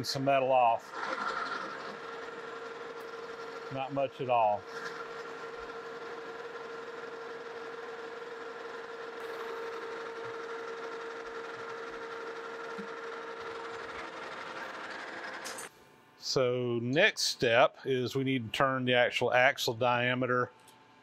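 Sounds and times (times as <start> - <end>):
cutting tool whine: 0.0 - 15.7
metal lathe running: 0.0 - 15.7.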